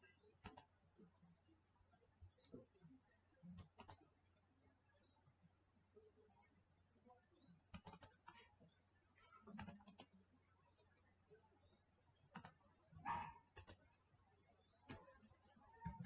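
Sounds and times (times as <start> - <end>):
mouse and keyboard clicks: 0.3 - 0.7, 3.5 - 4.1, 7.7 - 8.3, 9.5 - 10.2, 12.3 - 12.6, 13.5 - 13.9.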